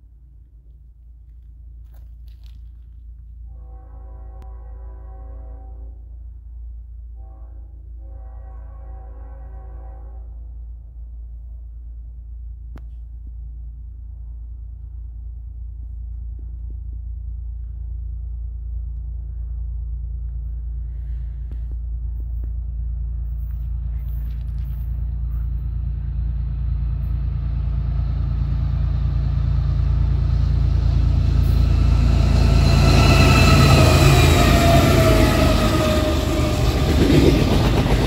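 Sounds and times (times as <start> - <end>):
diesel locomotive engine rumble: 0.0 - 38.0
higher-pitched train tones: 3.5 - 6.4, 7.1 - 11.0, 22.9 - 38.0.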